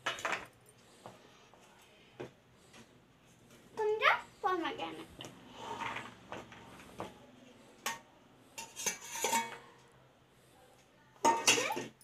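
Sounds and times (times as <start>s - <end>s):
spoon scraping a steel plate: 8.6s - 9.8s.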